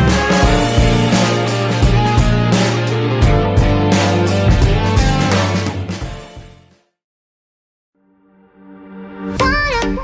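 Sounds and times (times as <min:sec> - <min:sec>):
background music with guitar and drums: 0:00.0 - 0:06.7.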